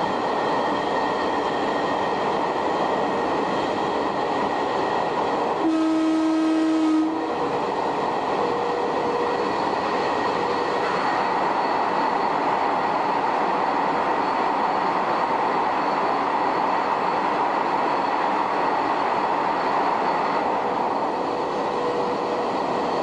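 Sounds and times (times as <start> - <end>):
train wheels on rails: 0.0 - 23.0
train horn blast: 5.6 - 7.4.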